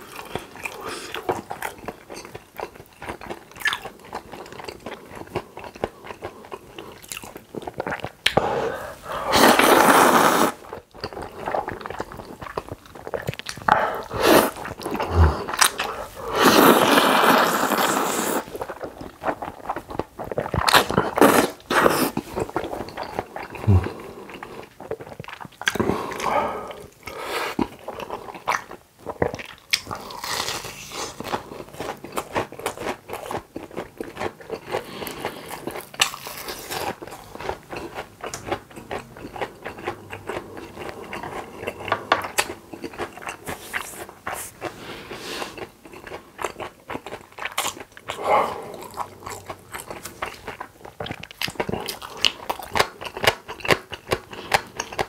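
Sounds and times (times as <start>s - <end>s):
crunching and chewing fried food: 0.0s - 8.4s, 9.3s - 55.0s
slurping noodles: 8.3s - 10.7s, 13.1s - 18.7s.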